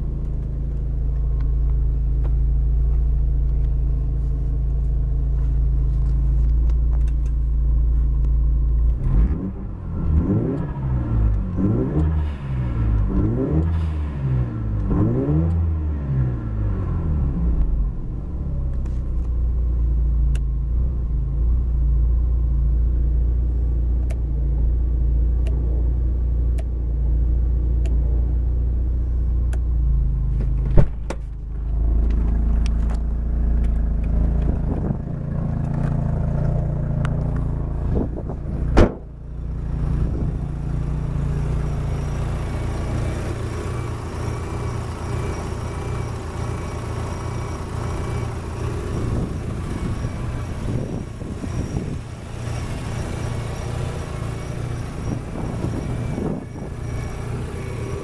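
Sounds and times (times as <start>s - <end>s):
rotary engine idling: 31.3s - 58.0s
loud thumps: 38.0s - 39.2s.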